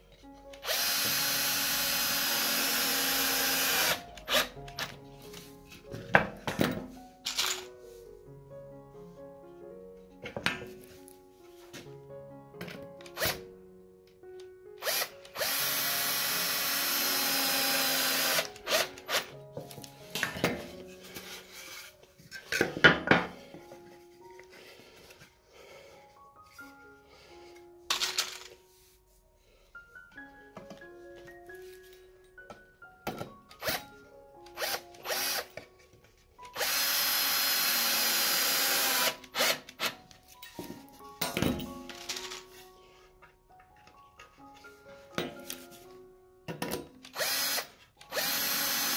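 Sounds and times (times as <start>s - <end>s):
power drill driving a screw: 0.6s - 4.5s, 14.8s - 19.3s, 33.6s - 33.8s, 34.6s - 35.5s, 36.5s - 40.0s, 47.1s - 48.9s.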